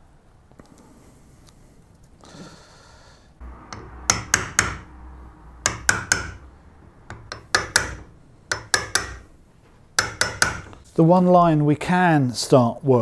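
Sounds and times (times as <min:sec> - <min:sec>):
hammer striking wood chisel: 0:03.7 - 0:04.9, 0:05.6 - 0:06.5, 0:07.1 - 0:09.3, 0:10.0 - 0:10.8.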